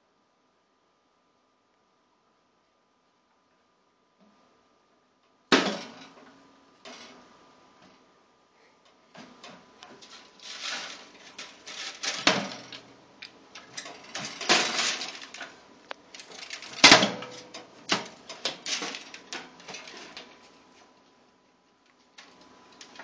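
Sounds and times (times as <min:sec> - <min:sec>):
oven door rattling: 0:13.6 - 0:15.6, 0:16.2 - 0:20.3.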